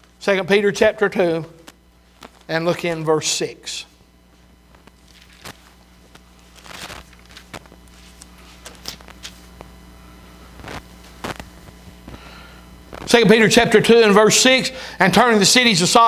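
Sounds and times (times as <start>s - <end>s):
steady low hum: 0.0s - 16.0s
pages turning: 2.1s - 2.5s, 4.7s - 9.7s, 10.6s - 11.5s.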